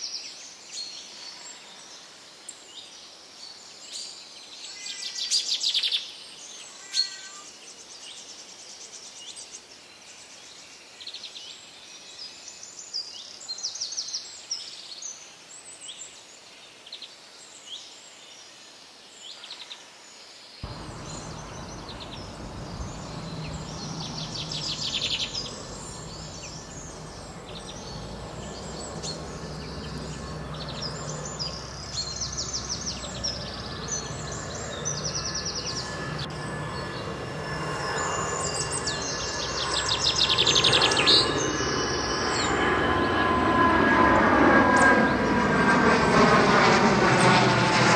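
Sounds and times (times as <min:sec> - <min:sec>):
steady low rumble: 0:20.6 - 0:37.8
songbirds chirping and trilling: 0:20.6 - 0:43.3.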